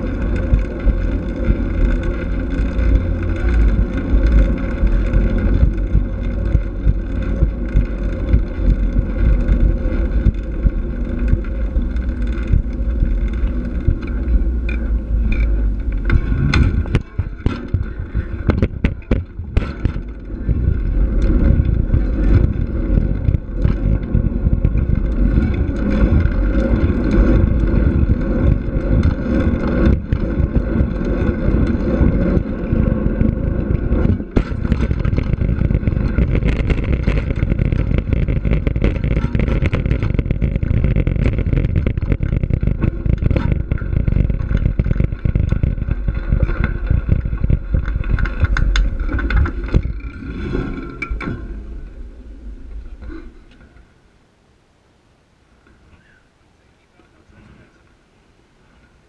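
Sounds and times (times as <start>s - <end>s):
wind buffeting microphone: 0.0s - 53.4s
bike tyres rolling on gravel: 0.0s - 54.2s.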